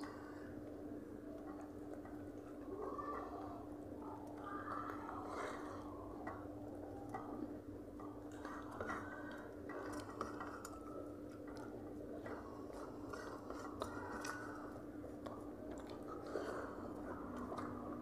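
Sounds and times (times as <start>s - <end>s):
fingers mixing rice and curry: 0.0s - 18.0s
person chewing: 8.0s - 17.9s.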